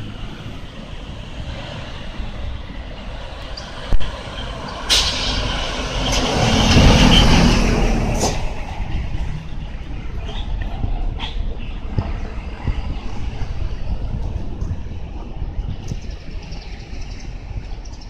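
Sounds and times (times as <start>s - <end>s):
vehicle driving past: 0.0s - 9.8s
low traffic rumble: 0.0s - 18.0s.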